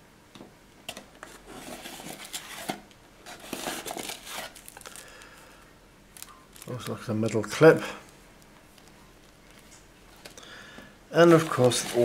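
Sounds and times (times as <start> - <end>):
cardboard packaging rustling: 1.2 - 5.2, 11.2 - 12.0.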